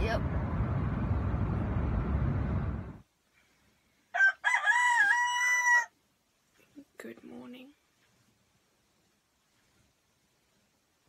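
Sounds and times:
car cabin road noise: 0.0s - 3.0s
rooster crowing: 4.1s - 6.0s.

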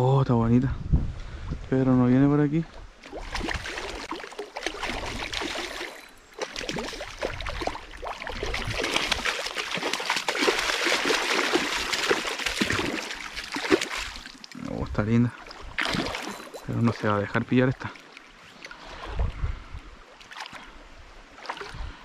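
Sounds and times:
running stream water: 2.3s - 22.0s
fish splashing at surface: 3.1s - 14.6s, 15.8s - 16.7s.

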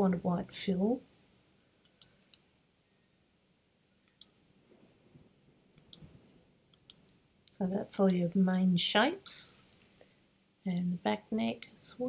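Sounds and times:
computer mouse clicks: 1.8s - 2.4s, 4.0s - 4.4s, 5.7s - 6.1s, 6.7s - 8.2s.

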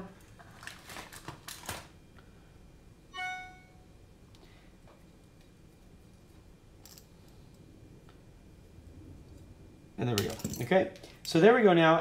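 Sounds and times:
short clear ringing tone: 3.1s - 3.9s.

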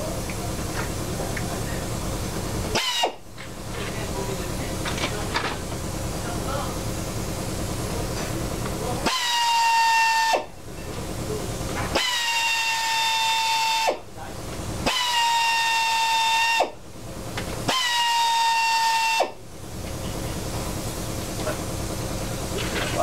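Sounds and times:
pneumatic tool whining: 2.7s - 4.0s, 9.0s - 10.5s, 11.7s - 14.1s, 14.8s - 19.4s.

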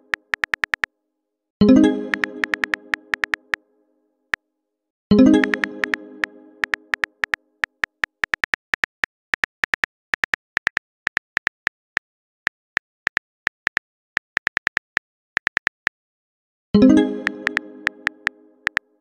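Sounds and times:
phone keyboard clicks: 0.1s - 0.9s, 2.1s - 3.6s, 5.4s - 6.0s, 6.6s - 16.0s, 17.2s - 18.8s.

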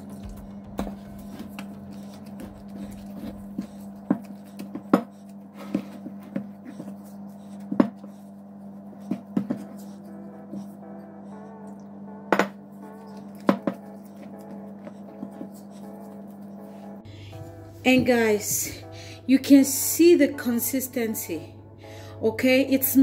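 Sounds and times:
low hum: 0.0s - 23.0s.

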